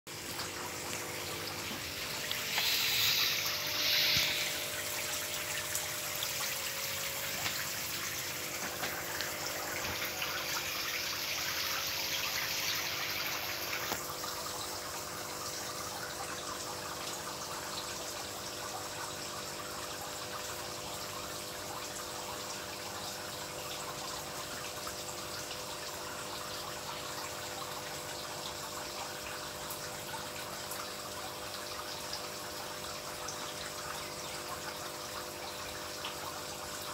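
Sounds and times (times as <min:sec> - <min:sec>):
water trickling into a tank: 0:00.1 - 0:36.9.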